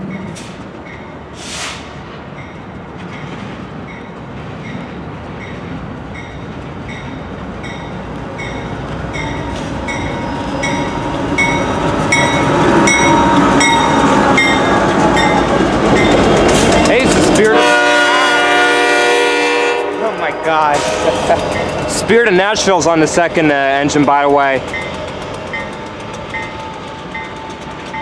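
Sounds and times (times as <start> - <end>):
diesel locomotives passing: 0.0 - 28.0
brief hiss: 1.4 - 1.9
locomotive bell ringing: 5.4 - 28.0.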